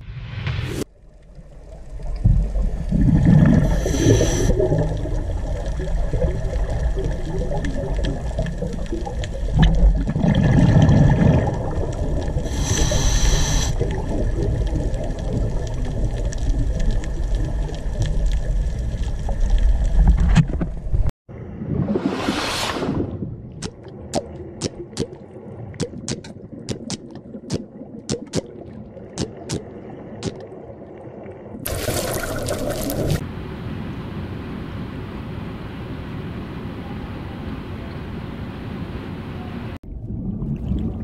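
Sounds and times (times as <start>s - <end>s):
low underwater rumble: 0.0s - 12.5s, 39.8s - 41.0s
bubbling surges: 0.2s - 13.0s, 13.8s - 20.0s, 21.3s - 33.2s, 39.8s - 41.0s
short hiss: 3.7s - 4.6s, 12.5s - 13.8s.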